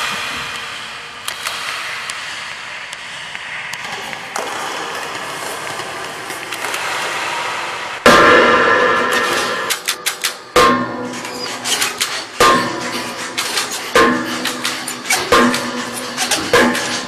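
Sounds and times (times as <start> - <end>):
sharp clicks and crackles: 9.2 - 17.0.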